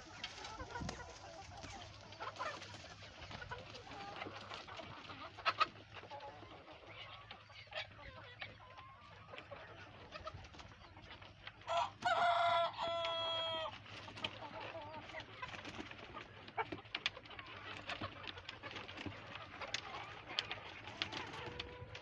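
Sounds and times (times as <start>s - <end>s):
chickens clucking: 0.0s - 22.0s
rooster crowing loudly: 11.7s - 13.7s.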